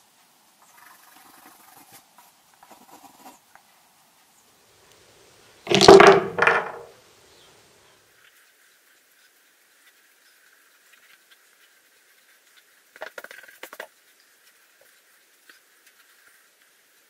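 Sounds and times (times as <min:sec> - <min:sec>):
pencil scratching on paper: 0:00.8 - 0:03.4.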